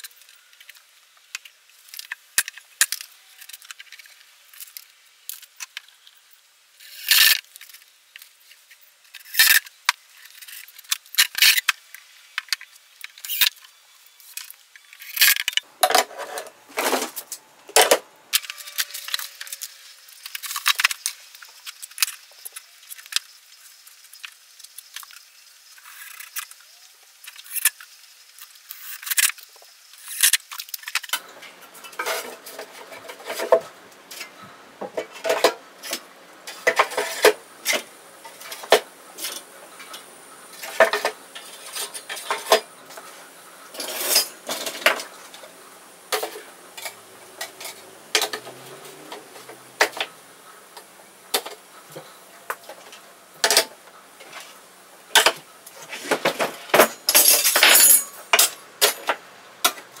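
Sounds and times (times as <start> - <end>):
metal tools clinking: 43.7 - 45.1, 56.7 - 59.1.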